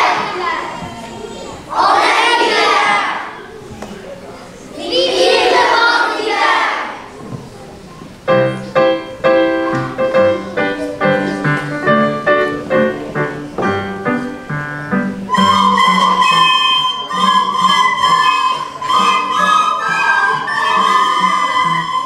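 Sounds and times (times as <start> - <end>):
children's voices: 0.0 - 8.2, 9.5 - 11.9, 17.0 - 22.0
piano playing: 8.3 - 22.0.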